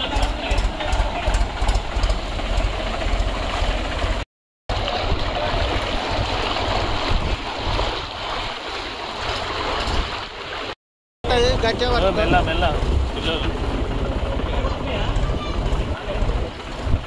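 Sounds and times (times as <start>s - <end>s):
tractor engine running low: 0.0s - 7.2s
water churning and splashing: 0.0s - 17.0s.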